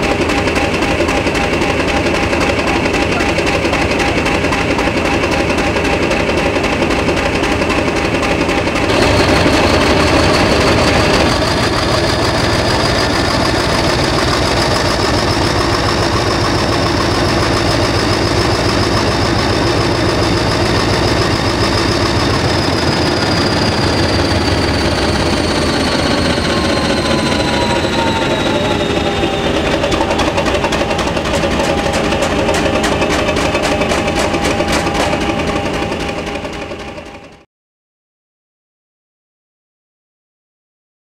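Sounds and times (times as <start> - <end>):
diesel locomotive engine running: 0.0 - 37.4
high whine: 8.9 - 37.2.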